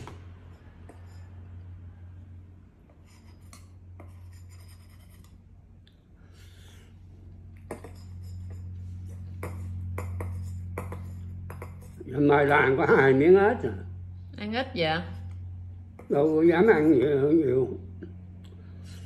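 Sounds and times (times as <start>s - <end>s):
low hum: 0.0s - 19.0s
metal spoon scraping bowl: 0.4s - 1.7s, 7.7s - 13.1s.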